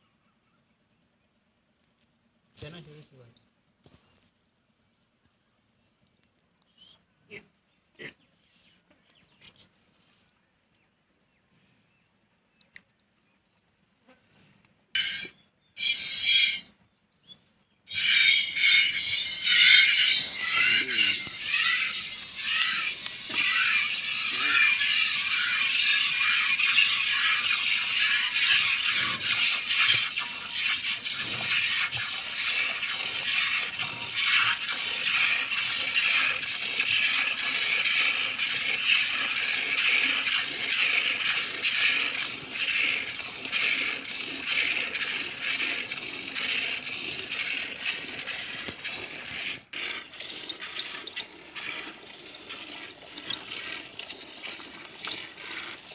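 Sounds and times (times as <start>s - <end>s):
milk squirting into metal pot: 18.4s - 55.9s.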